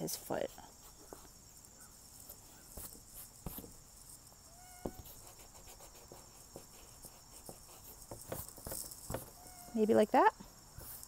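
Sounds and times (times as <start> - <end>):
steady high hiss: 0.0 - 11.0
eraser rubbing on paper: 4.8 - 9.3.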